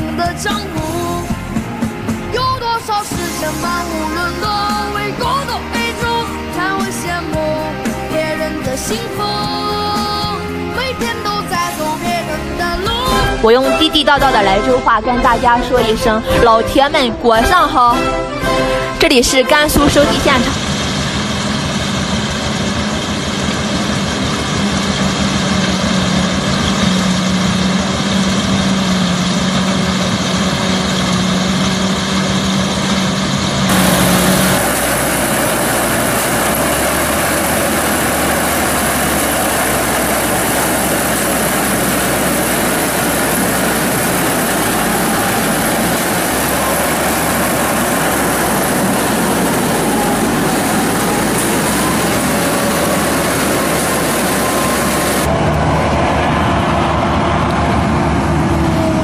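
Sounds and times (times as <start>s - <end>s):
harvester engine drone: 0.0s - 59.0s
harvesting header noise: 33.7s - 55.4s.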